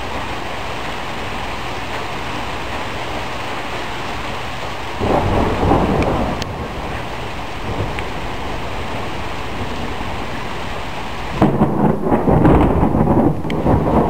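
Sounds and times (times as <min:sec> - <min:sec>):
heavy rain hissing: 0:00.0 - 0:14.0
thunder rumble: 0:04.9 - 0:14.0.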